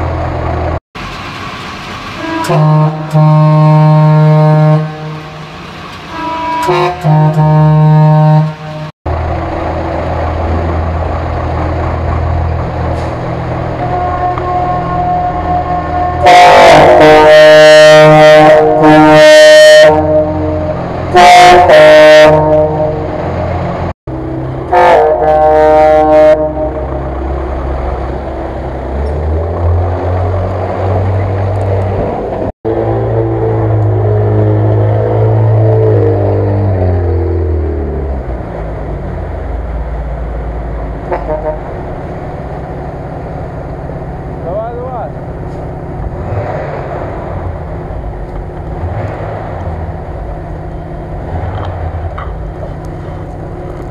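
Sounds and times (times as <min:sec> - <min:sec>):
vehicle horn blasts: 0:02.2 - 0:05.4, 0:06.1 - 0:08.9, 0:13.8 - 0:23.0, 0:24.7 - 0:26.9, 0:41.0 - 0:41.7
off-road vehicle engine revving: 0:43.4 - 0:53.9.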